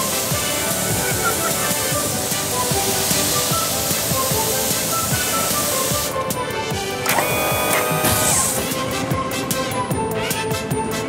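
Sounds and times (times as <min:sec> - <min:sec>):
hoses spraying water: 0:00.0 - 0:08.8
background music with a beat: 0:00.0 - 0:11.0.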